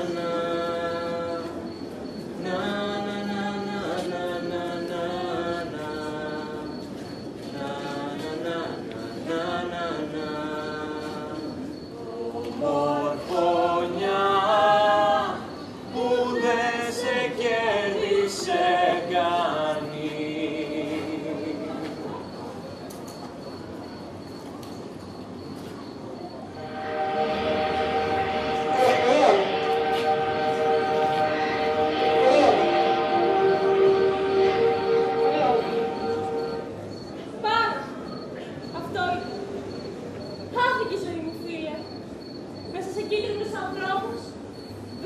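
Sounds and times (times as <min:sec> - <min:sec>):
voices singing unaccompanied: 0:00.0 - 0:22.4, 0:26.5 - 0:37.2.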